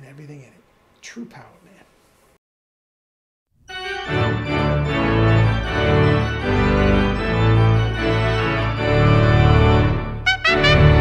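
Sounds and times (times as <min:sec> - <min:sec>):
organ chords: 0:03.6 - 0:11.0.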